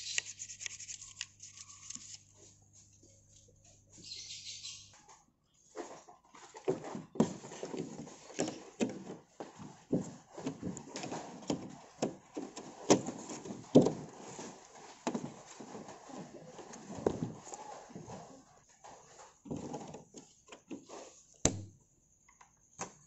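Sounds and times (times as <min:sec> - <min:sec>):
wiring harness knocks and clicks: 0:09.9 - 0:14.3.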